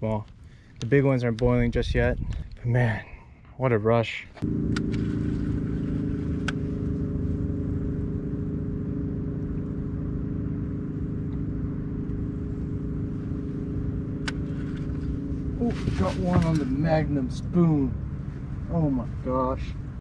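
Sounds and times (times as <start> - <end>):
outboard motor running: 4.4 - 20.0
sharp clicks: 4.7 - 5.2, 6.4 - 6.6.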